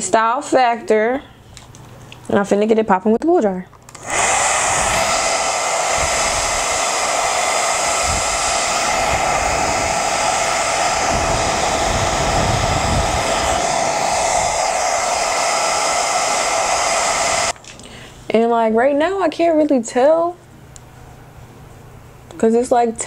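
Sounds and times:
hair dryer running: 3.9 - 17.6
wind buffeting microphone: 4.5 - 6.9, 7.7 - 15.1.

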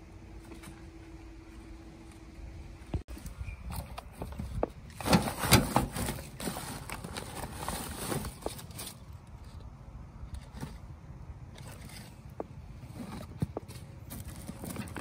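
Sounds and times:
rustling of leaves and sacking: 4.9 - 9.6.

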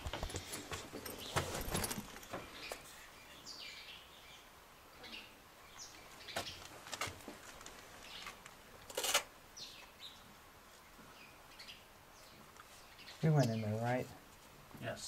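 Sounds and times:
scuffs and knocks: 0.0 - 2.8
small birds chirping: 0.0 - 8.8, 9.4 - 15.0.

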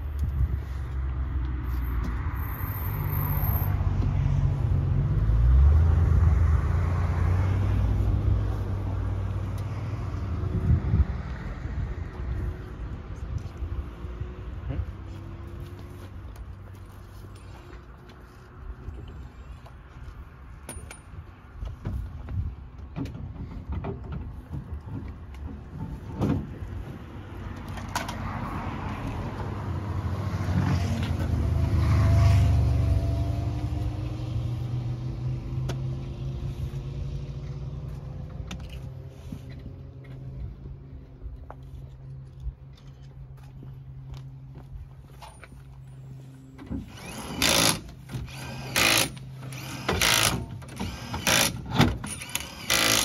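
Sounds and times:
vehicle passing by: 0.5 - 16.3, 27.0 - 41.9.

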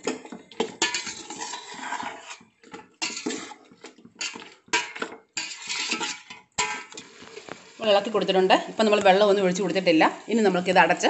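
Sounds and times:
metal spoon scraping a pot: 0.0 - 7.6.

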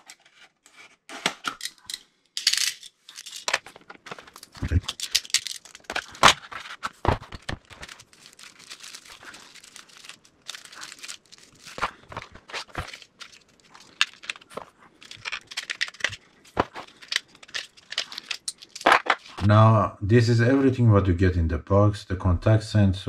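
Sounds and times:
packaging crinkling: 3.1 - 19.4.

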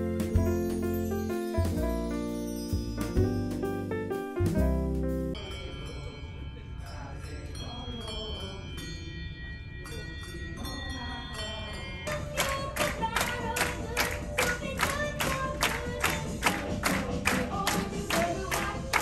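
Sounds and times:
handbells ringing a tune: 0.0 - 3.6, 5.4 - 15.5
steady beat: 0.0 - 5.4
voices singing: 10.6 - 19.0.

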